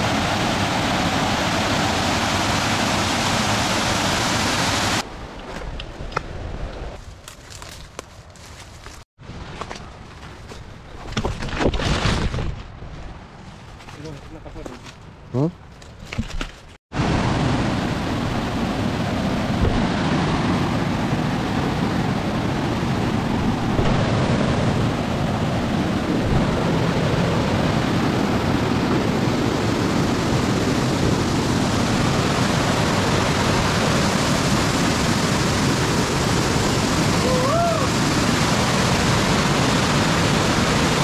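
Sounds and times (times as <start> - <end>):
waterfall rushing: 0.0 - 5.0, 29.9 - 41.0.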